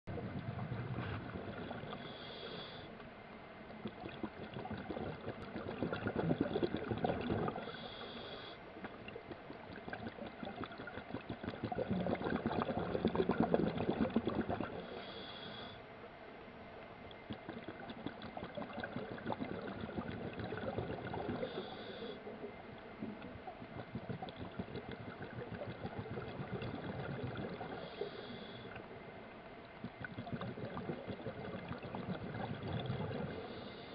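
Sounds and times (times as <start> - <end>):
bubbling gurgling exhale: 0.1 - 3.0, 3.7 - 15.8, 17.1 - 29.0, 29.6 - 33.9
regulator hissing inhales: 2.0 - 3.0, 7.6 - 8.7, 14.8 - 15.8, 21.4 - 22.3, 27.7 - 28.8, 33.3 - 33.9.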